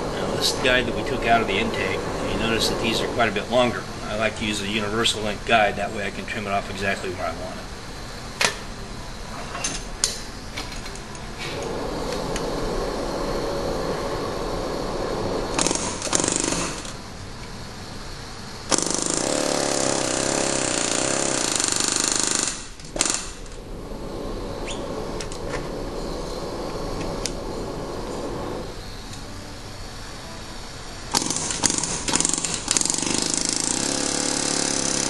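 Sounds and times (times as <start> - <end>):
steady background hum: 0.0 - 35.0
pneumatic air hammer bursts: 15.5 - 17.0, 18.7 - 23.6, 31.1 - 35.0.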